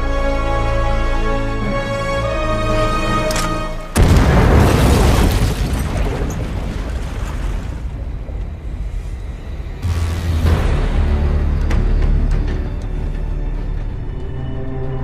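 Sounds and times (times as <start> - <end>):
dramatic orchestral score: 0.0 - 5.0, 7.9 - 15.0
deep rumbling boom: 4.0 - 12.0.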